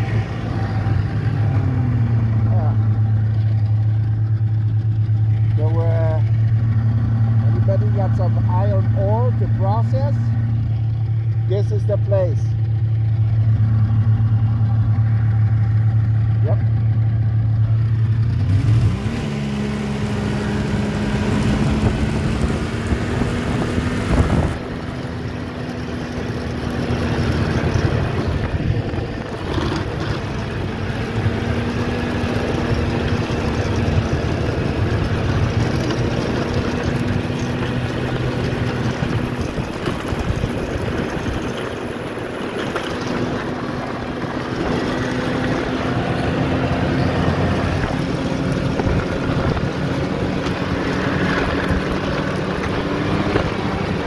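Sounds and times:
snowmobile engine running: 0:00.0 - 0:54.0
wind noise on microphone: 0:20.7 - 0:25.0, 0:26.9 - 0:43.3, 0:47.3 - 0:54.0.

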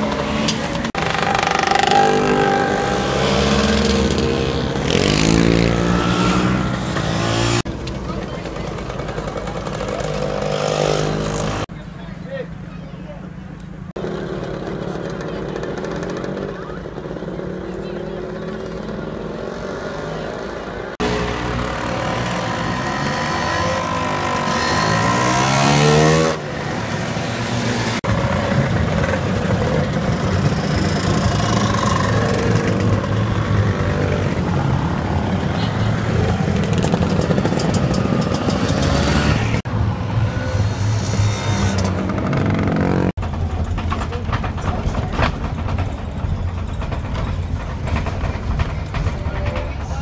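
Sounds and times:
scooter engine revving: 0:00.0 - 0:11.7, 0:14.0 - 0:43.3
scooter engines passing: 0:00.0 - 0:50.0.

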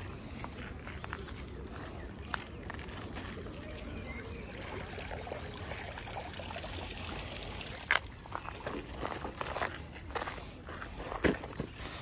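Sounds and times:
water pouring and dripping: 0:03.8 - 0:09.6.

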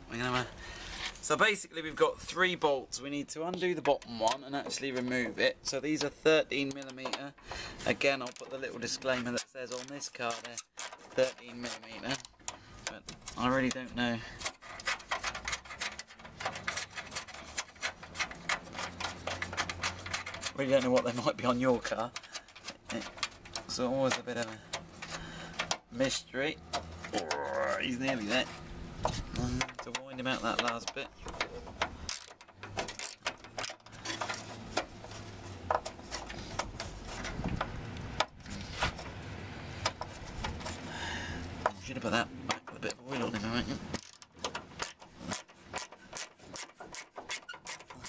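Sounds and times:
hand ratchet clicking: 0:14.4 - 0:21.2, 0:29.6 - 0:34.9, 0:43.9 - 0:48.0.

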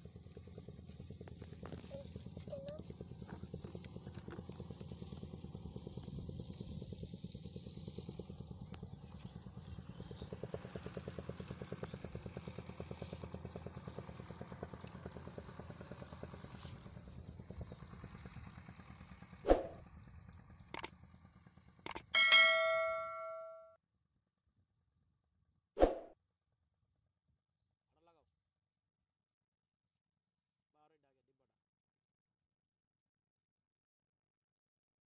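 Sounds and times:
small engine chugging: 0:00.0 - 0:23.7
sharp clicks: 0:21.9 - 0:22.1
bell chime: 0:22.2 - 0:23.7.

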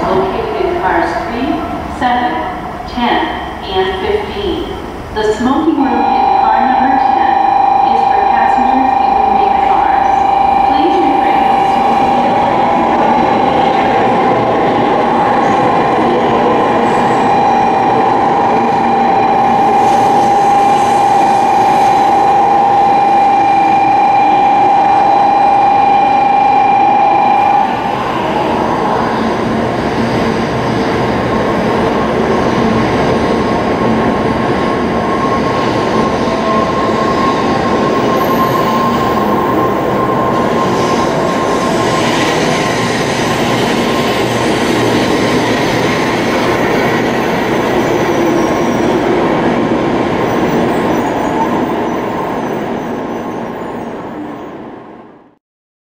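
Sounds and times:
steady high tone: 0:05.3 - 0:29.6, 0:34.5 - 0:49.3.

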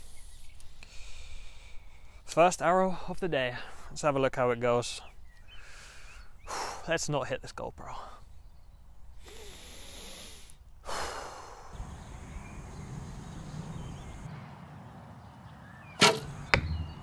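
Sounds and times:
short hissing puff: 0:09.2 - 0:12.3
wind rumbling on microphone: 0:11.7 - 0:17.0.

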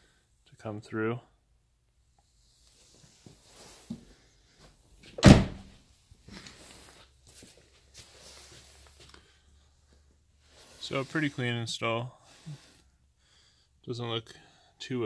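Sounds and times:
car door shutting: 0:05.2 - 0:05.7
rustling and handling noises: 0:06.1 - 0:11.6.

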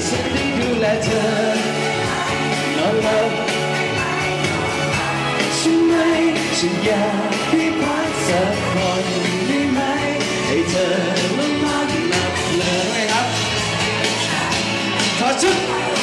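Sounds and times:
man singing into microphone: 0:00.0 - 0:03.6, 0:05.4 - 0:13.6
backing music: 0:00.0 - 0:16.0.

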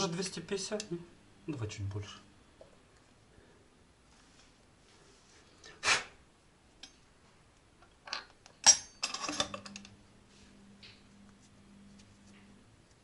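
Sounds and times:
faint low hum: 0:00.0 - 0:13.0
sharp ringing clink: 0:08.6 - 0:09.2.

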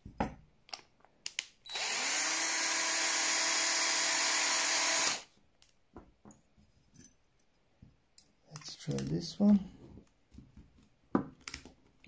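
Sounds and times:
battery drill motor whining: 0:01.7 - 0:05.3.

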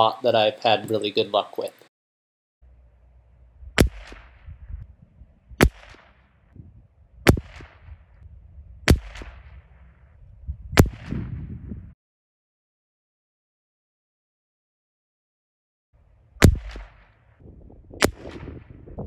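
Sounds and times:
low steady rumble: 0:02.6 - 0:11.9, 0:16.0 - 0:19.0
rifle shots: 0:03.8 - 0:04.6, 0:05.6 - 0:06.4, 0:07.2 - 0:08.2, 0:08.8 - 0:10.0, 0:10.8 - 0:11.4, 0:16.4 - 0:17.2, 0:18.0 - 0:18.8.

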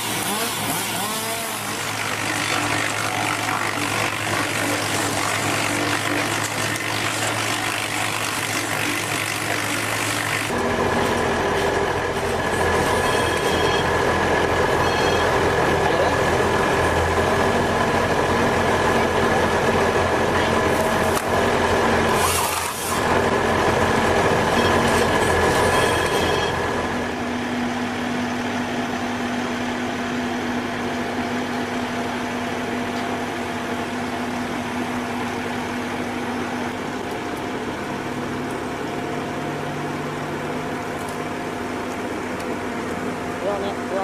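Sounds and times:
high-pitched machine whine: 0:00.0 - 0:32.3
heavy machine engines running: 0:00.0 - 0:44.0.

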